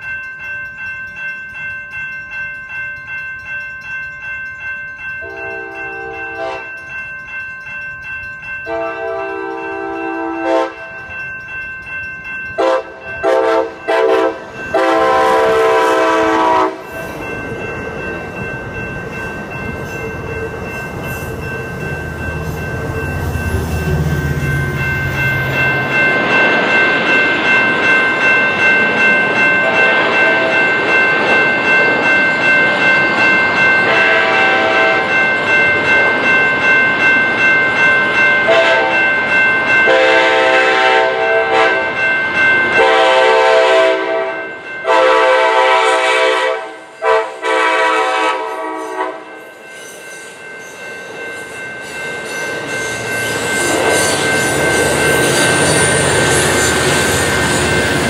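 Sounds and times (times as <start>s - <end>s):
crossing bell ringing: 0.0s - 58.0s
train horn blasts: 5.2s - 6.7s, 8.7s - 10.9s, 12.6s - 16.9s, 33.9s - 35.1s, 38.5s - 39.0s, 39.9s - 41.9s, 42.8s - 49.3s
train rumble: 47.0s - 58.0s.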